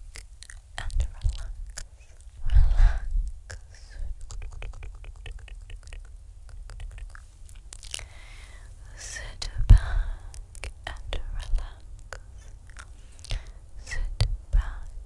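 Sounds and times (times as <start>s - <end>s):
wet mouth clicks and smacks: 0.1s - 2.6s, 3.2s - 8.2s, 10.2s - 13.6s.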